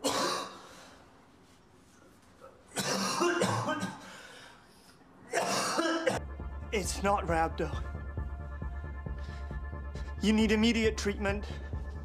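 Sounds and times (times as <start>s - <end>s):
man coughing harshly: 0.0s - 0.7s, 2.7s - 4.2s, 5.3s - 6.2s.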